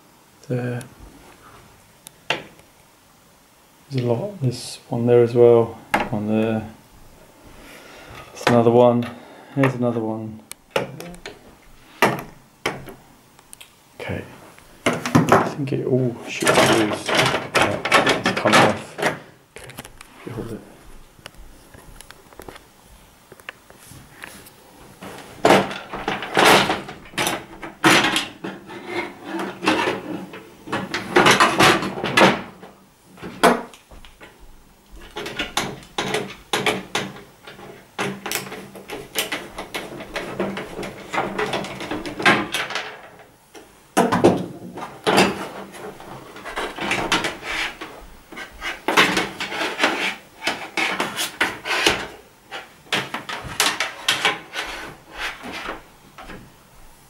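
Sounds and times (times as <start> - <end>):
plastic cover clattering on metal: 16.3 - 19.9, 25.0 - 33.7, 35.0 - 43.3, 44.0 - 56.4.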